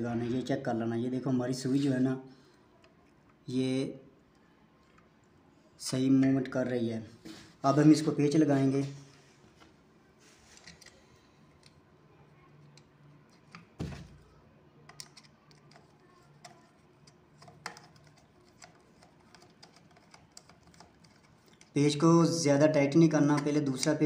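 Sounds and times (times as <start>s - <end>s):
screwdriver clicks and taps: 14.9s - 20.8s.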